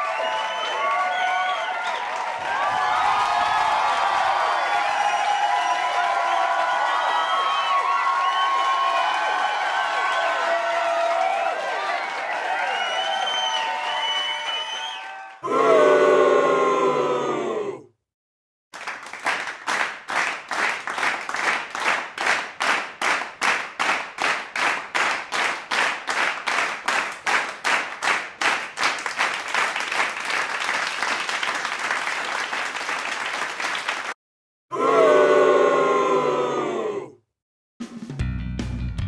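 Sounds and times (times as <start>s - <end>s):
crowd clapping in unison: 0.0s - 15.5s, 18.8s - 34.2s
continuous applause: 0.0s - 17.5s, 18.8s - 34.2s.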